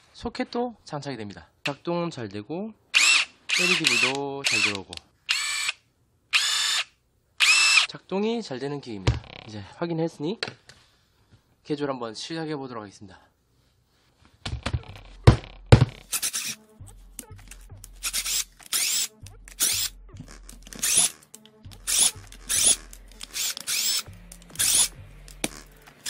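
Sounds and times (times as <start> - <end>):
background music with bass: 14.8 - 26.0
screwdriver squeaking: 16.0 - 16.6, 17.2 - 26.0.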